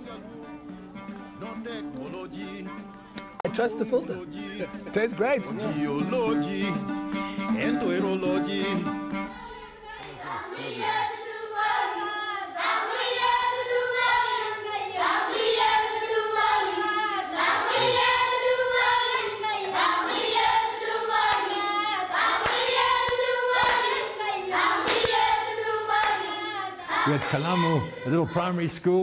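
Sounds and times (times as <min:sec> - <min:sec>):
hand claps: 0:00.7 - 0:03.5, 0:10.0 - 0:10.2, 0:21.2 - 0:21.6, 0:22.3 - 0:26.4, 0:27.1 - 0:27.8
children singing: 0:07.6 - 0:28.6.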